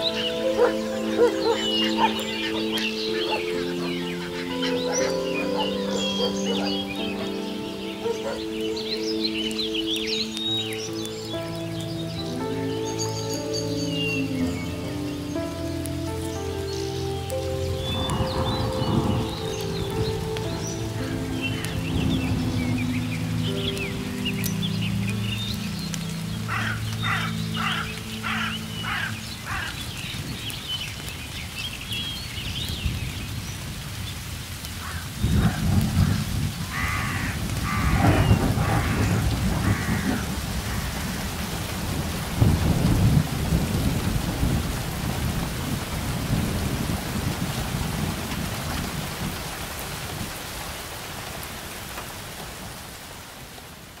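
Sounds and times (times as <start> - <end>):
bird calling: 0.0 - 31.1, 34.8 - 41.4
steady rain: 0.0 - 54.0
thunder rumbling: 17.4 - 51.1.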